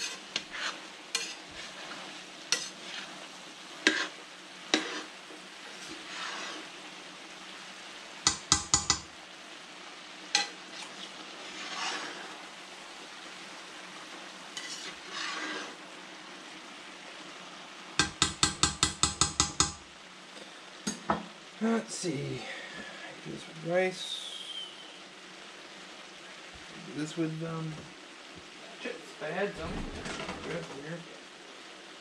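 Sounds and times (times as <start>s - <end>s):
metal spatula scraping a pan: 0.0s - 6.8s, 10.3s - 12.4s, 14.6s - 15.8s
food sizzling in a frying pan: 0.0s - 32.0s
spatula tapping on a pan: 8.3s - 9.1s, 18.0s - 19.8s.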